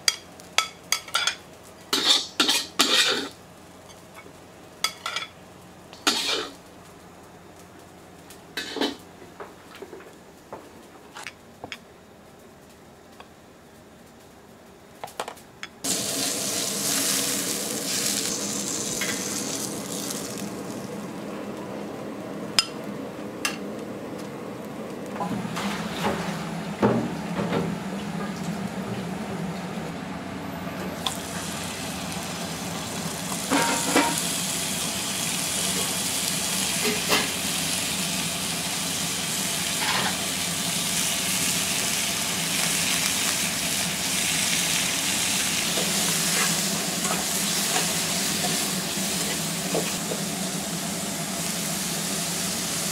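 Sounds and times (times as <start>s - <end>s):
utensils clinking on pan: 0.6s - 3.4s, 33.5s - 34.2s
oil sizzling in a pan: 1.9s - 9.0s, 15.8s - 21.1s, 31.0s - 52.9s
steady low hum: 15.7s - 39.7s.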